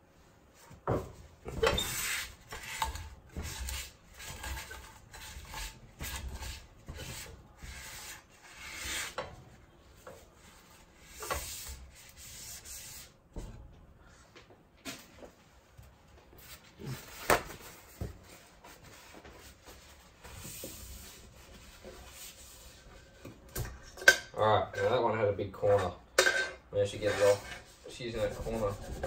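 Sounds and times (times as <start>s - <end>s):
paper towel scratching pan: 26.8s - 29.0s.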